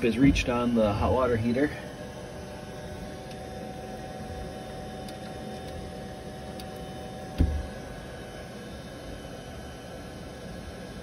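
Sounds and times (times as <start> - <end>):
faint whine: 0.0 - 11.0
low hum and hiss: 0.0 - 11.0
dull thump: 7.4 - 7.7.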